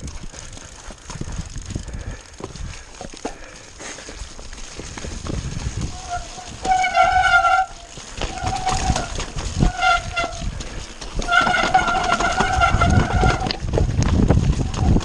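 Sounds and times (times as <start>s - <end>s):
tyres rattling on rocky trail: 0.0s - 15.0s
bike disc brakes honking: 6.0s - 10.5s, 11.2s - 13.6s.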